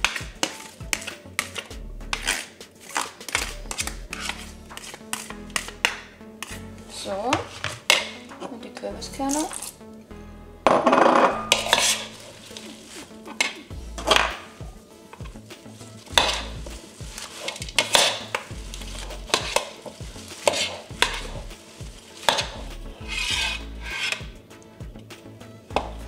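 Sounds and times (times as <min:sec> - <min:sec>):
salad tossed in a bowl: 0:16.0 - 0:22.6.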